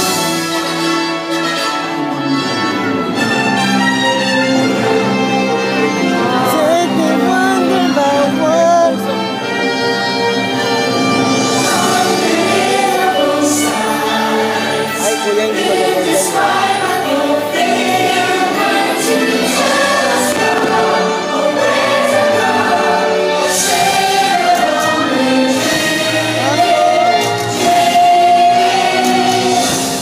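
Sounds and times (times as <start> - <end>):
orchestral music: 0.0 - 30.0
choir singing held notes: 11.3 - 30.0
firework bursts crackling: 18.0 - 24.1.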